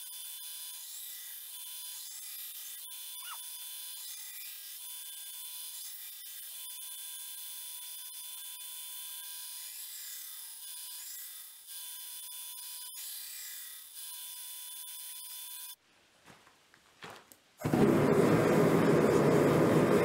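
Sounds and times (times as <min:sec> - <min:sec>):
gas burner rushing: 0:17.6 - 0:20.0.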